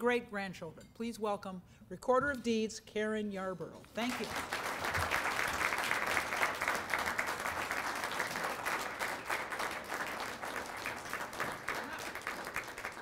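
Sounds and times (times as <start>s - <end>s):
audience applauding: 4.0s - 13.0s.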